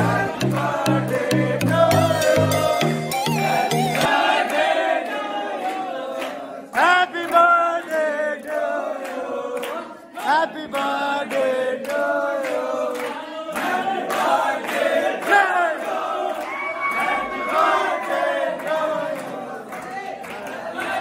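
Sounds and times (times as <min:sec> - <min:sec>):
hands clapping to a beat: 0:00.0 - 0:02.7, 0:03.8 - 0:21.0
young men singing together: 0:00.0 - 0:21.0.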